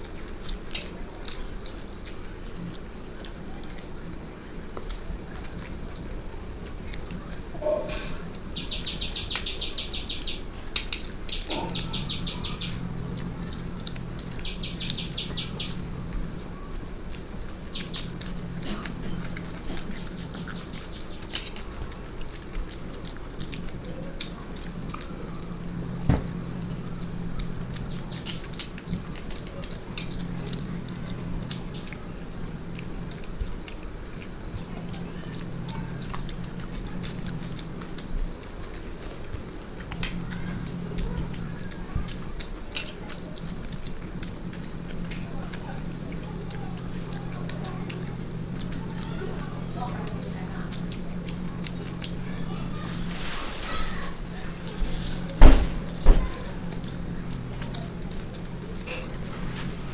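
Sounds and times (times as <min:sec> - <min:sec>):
chewing and lip smacks: 0:00.0 - 0:59.9
rapid high-pitched chirping: 0:07.6 - 0:22.2, 0:26.4 - 0:38.1.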